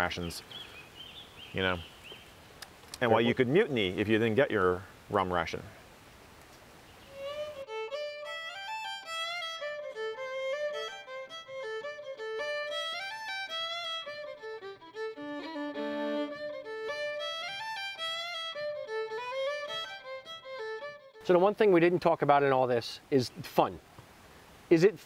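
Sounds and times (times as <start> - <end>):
fiddle playing fast tune: 7.1 - 22.0.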